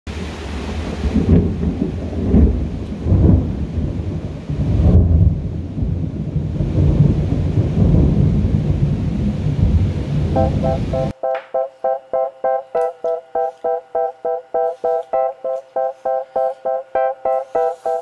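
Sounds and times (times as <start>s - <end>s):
thunder rumbling: 0.6s - 11.1s
rain hissing: 17.5s - 18.0s.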